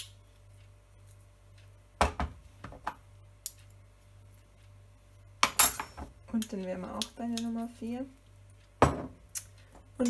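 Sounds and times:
teaspoons clicking on metal pot: 6.4s - 7.6s.

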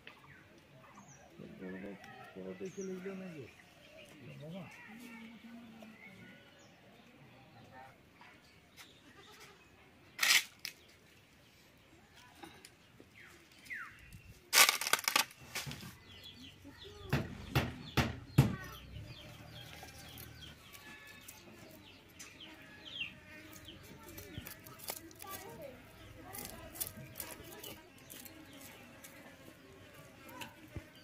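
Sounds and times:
sharp knocks and clatters: 17.0s - 18.8s.

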